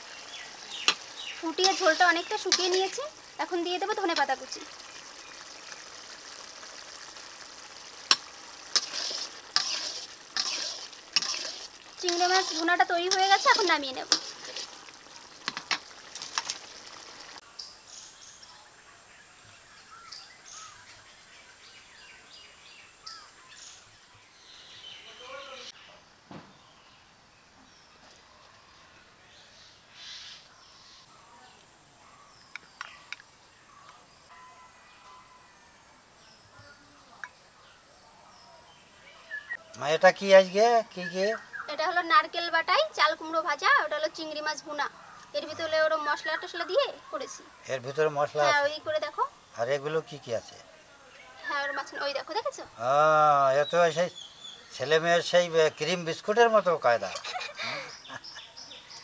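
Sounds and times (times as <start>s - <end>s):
gravy sizzling in a pan: 0.0s - 17.5s
faint hiss: 0.0s - 59.0s
spatula tapping and scraping pan: 8.1s - 14.7s, 15.4s - 15.8s.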